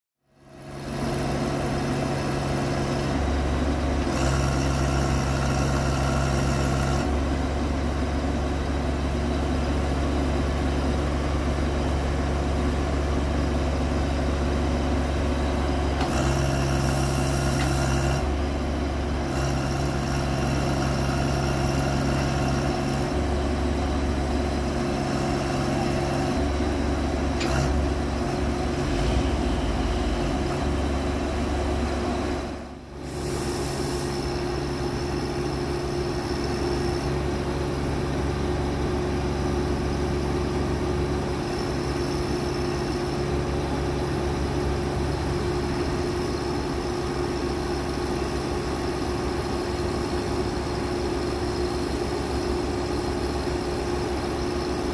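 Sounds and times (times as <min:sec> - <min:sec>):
truck engine running: 0:00.4 - 0:54.9
hiss: 0:33.0 - 0:34.7.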